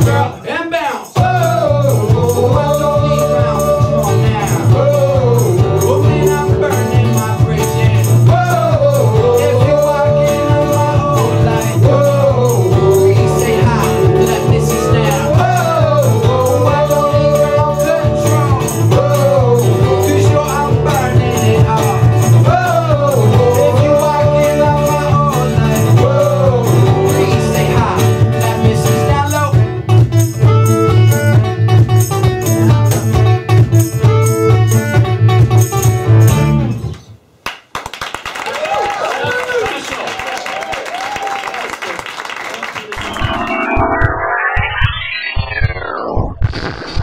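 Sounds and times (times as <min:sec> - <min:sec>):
man singing: 0:00.0 - 0:29.7
acoustic guitar: 0:00.0 - 0:37.1
rattling shaker percussion: 0:00.8 - 0:29.1
bass guitar: 0:01.2 - 0:37.0.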